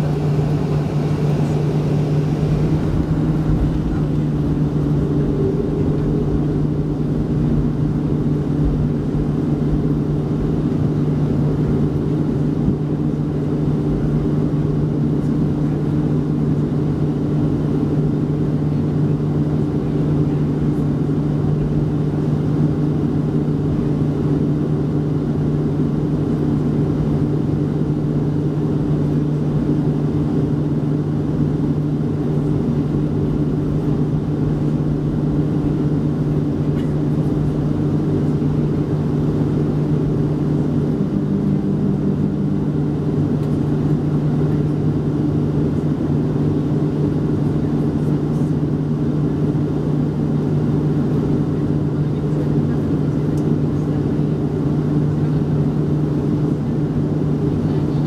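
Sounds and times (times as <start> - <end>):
jet engines humming: 0.0 - 58.0.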